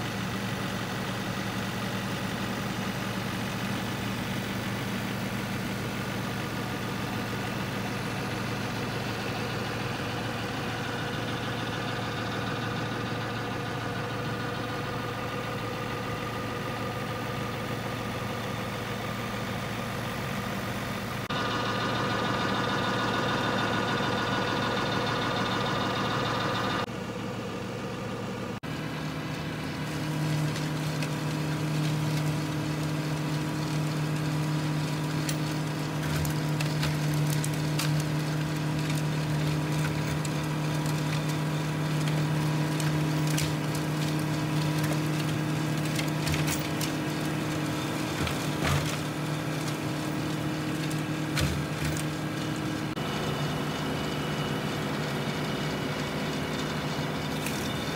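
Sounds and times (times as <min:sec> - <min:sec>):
tractor running: 0:00.0 - 0:57.9
spinning mower drone: 0:28.6 - 0:57.9
debris cracking against flails: 0:29.4 - 0:53.0.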